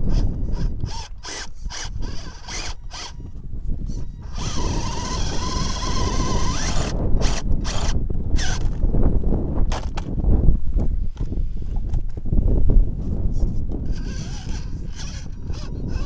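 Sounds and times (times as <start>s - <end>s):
toy car electric motor whining: 0.0s - 8.8s, 13.8s - 16.0s.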